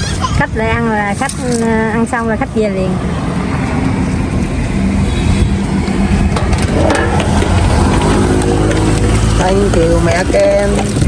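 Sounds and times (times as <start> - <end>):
low motor-like rumble: 6.1 - 11.0.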